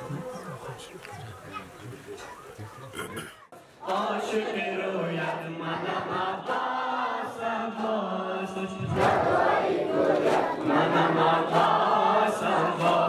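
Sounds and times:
crowd of men chanting a lament: 3.4 - 13.0.

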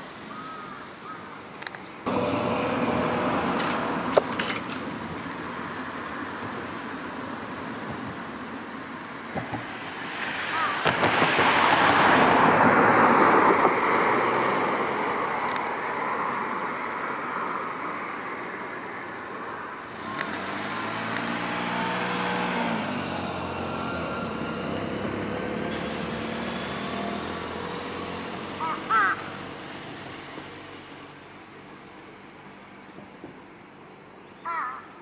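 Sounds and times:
vehicles passing: 0.0 - 35.0
crow call: 0.3 - 1.4, 10.5 - 10.8, 28.6 - 29.3, 34.4 - 35.0.

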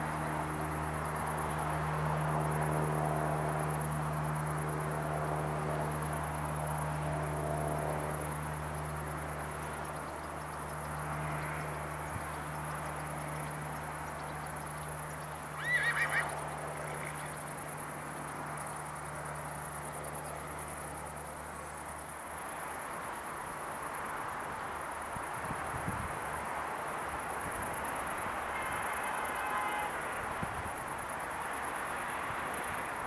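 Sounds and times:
distant jet engines humming: 0.0 - 28.3
horse whinnying: 15.6 - 16.3.

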